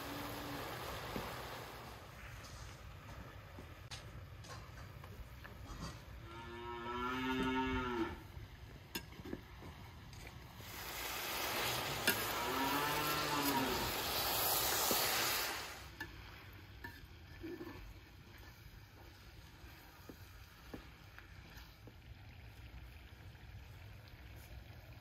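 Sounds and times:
onions and meat sizzling in pot: 0.0 - 7.4, 8.0 - 25.0
cattle mooing: 6.2 - 8.2, 12.2 - 13.9.

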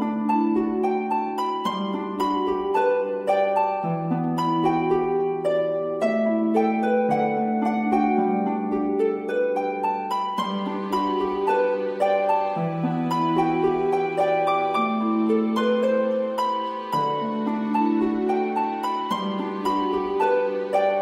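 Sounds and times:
plucked harp-like arpeggios: 0.0 - 21.0.

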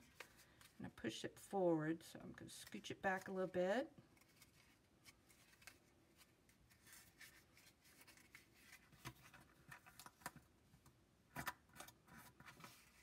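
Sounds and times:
paper and tape rustling: 2.6 - 10.4, 11.8 - 13.0.

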